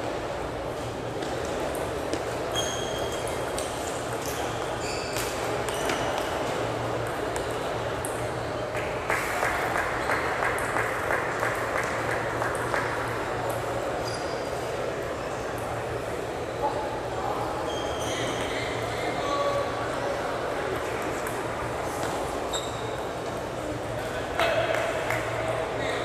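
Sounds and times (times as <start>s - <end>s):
short high squeaks: 2.5s - 3.4s, 4.3s - 6.2s, 17.6s - 19.0s, 22.5s - 23.0s.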